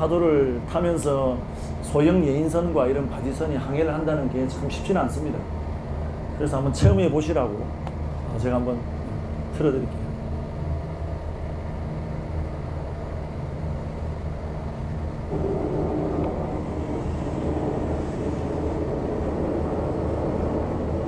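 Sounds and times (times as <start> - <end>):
low engine drone: 0.0 - 21.0
rough rumble: 15.2 - 21.0.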